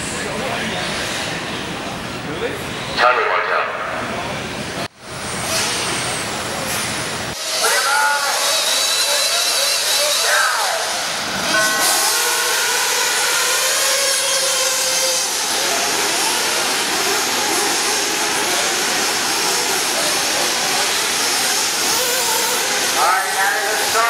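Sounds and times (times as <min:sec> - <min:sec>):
rc car motors whining: 0:07.4 - 0:24.0
steady tones: 0:07.4 - 0:24.0.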